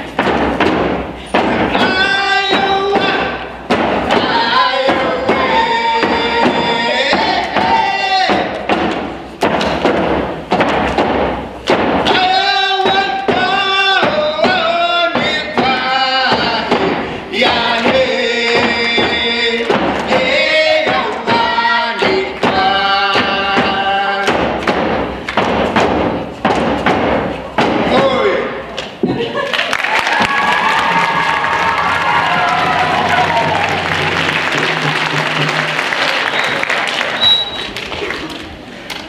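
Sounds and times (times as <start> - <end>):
frame drums beating: 0.0 - 29.2, 30.0 - 37.2
voices singing together: 1.3 - 8.7, 12.0 - 24.6.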